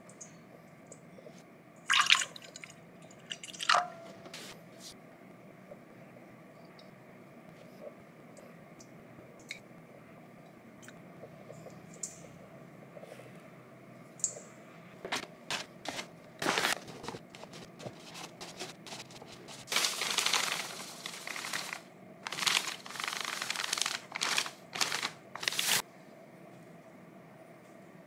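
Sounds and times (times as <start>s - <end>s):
crinkling and rustling: 15.0s - 25.8s.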